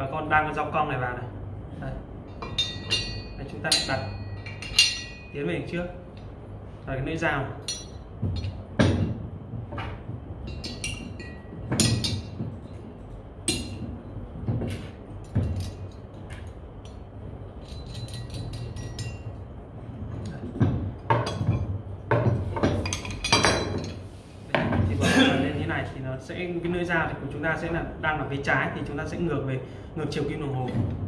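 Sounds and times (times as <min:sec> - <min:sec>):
metal blades clinking and knocking: 0:02.3 - 0:05.4, 0:07.6 - 0:09.0, 0:17.6 - 0:19.4.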